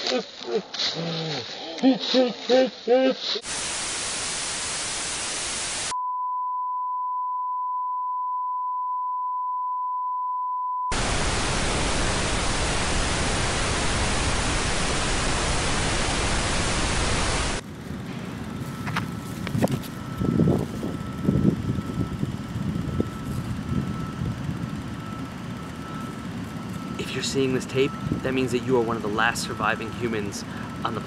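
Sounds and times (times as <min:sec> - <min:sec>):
television static hiss: 0:03.4 - 0:05.9, 0:10.9 - 0:17.6
steady test-tone beep: 0:05.9 - 0:10.9, 0:20.0 - 0:24.4, 0:25.0 - 0:31.0.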